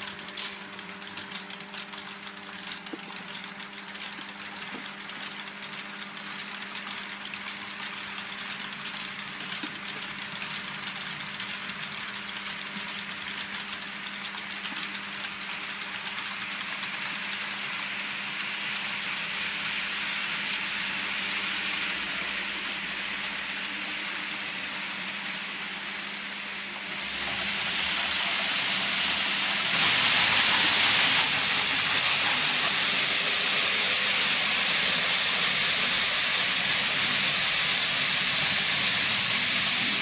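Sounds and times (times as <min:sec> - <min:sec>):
small wheels rolling on rails: 0:00.0 - 0:40.0
electric motor hum: 0:17.9 - 0:40.0.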